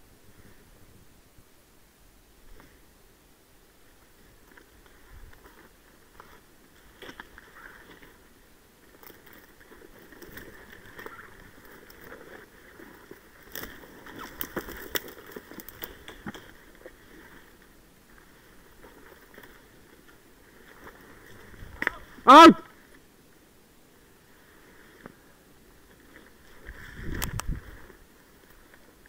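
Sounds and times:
dry scrub rustling: 0:03.8 - 0:23.1
twigs snapping: 0:08.9 - 0:17.0, 0:21.7 - 0:22.0.

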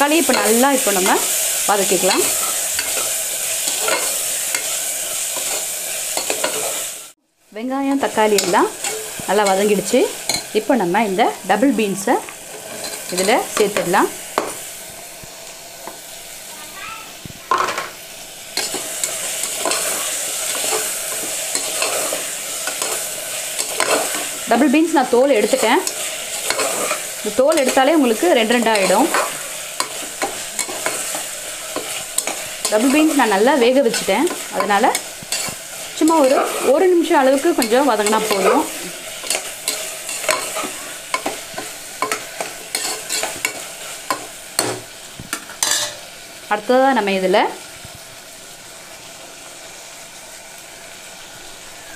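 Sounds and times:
food sizzling in a pot: 0:00.0 - 0:51.9
metal spatula scraping pot: 0:00.2 - 0:06.9, 0:08.2 - 0:10.5, 0:12.4 - 0:14.5, 0:18.6 - 0:44.8, 0:45.6 - 0:46.0.

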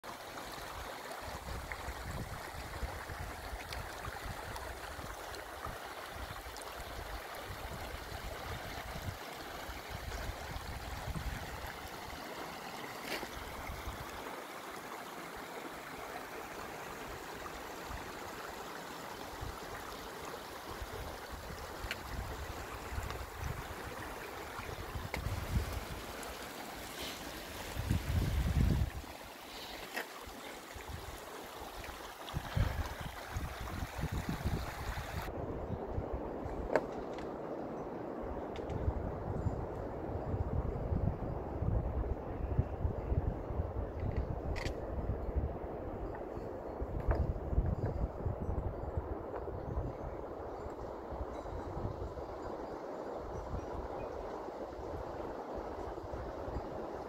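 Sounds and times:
meltwater running over gravel: 0:00.4 - 0:17.0, 0:17.7 - 0:35.3
wind buffeting microphone: 0:01.4 - 0:05.1, 0:24.6 - 0:26.0, 0:27.7 - 0:29.1, 0:32.3 - 0:52.4.

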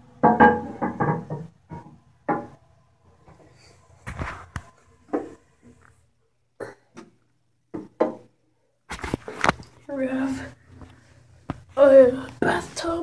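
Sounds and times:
knocks and clunks: 0:00.2 - 0:02.6.

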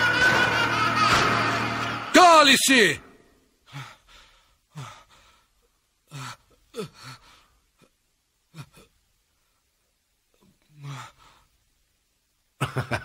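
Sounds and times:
man gasping and groaning: 0:03.7 - 0:05.4, 0:06.1 - 0:07.9, 0:10.7 - 0:11.4.

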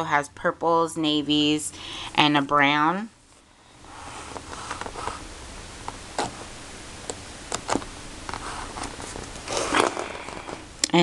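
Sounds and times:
paper rustling: 0:07.6 - 0:10.6.

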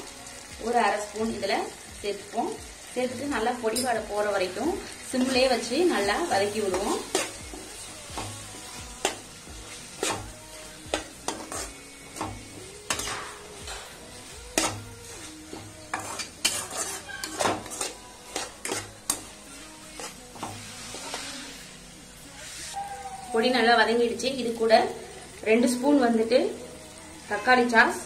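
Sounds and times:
vegetables sizzling: 0:00.0 - 0:28.0
spatula scraping a pan: 0:04.8 - 0:22.8.

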